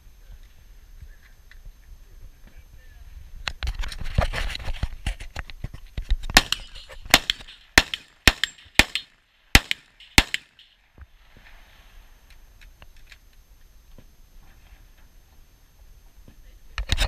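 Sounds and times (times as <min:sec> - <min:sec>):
gunshots: 0:06.3 - 0:10.7.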